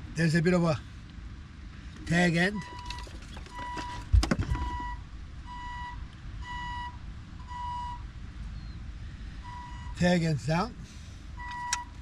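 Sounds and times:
low background rumble: 0.0 - 12.0
electronic warning beeps: 2.6 - 8.0, 9.4 - 10.0, 11.4 - 12.0.

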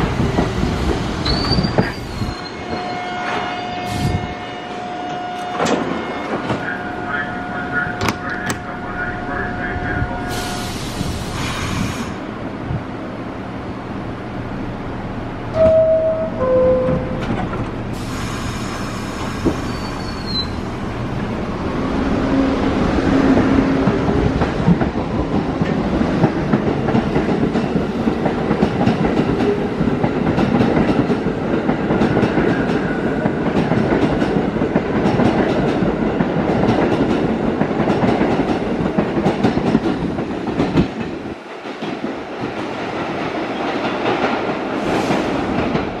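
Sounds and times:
dense train rattle: 0.0 - 4.4, 5.4 - 13.0, 14.4 - 46.0
faint distant train: 0.0 - 46.0
two-note door chime: 15.6 - 17.3.

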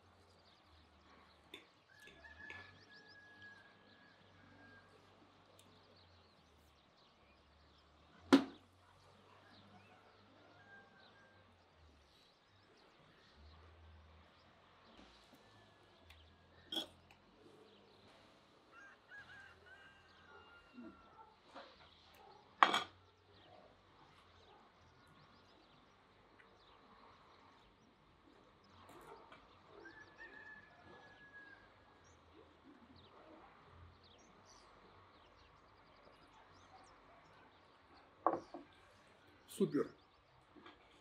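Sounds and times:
faint birds calling: 0.0 - 41.0
cutlery clinking on metal platter: 22.6 - 23.0.

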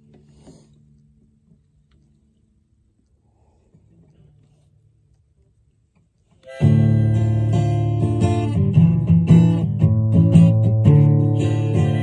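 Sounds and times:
acoustic guitar strumming: 6.4 - 12.0.

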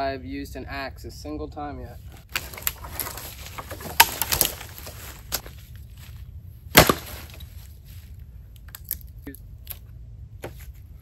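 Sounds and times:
wood cracking and snapping: 2.3 - 5.5, 6.7 - 7.5, 8.6 - 9.1.

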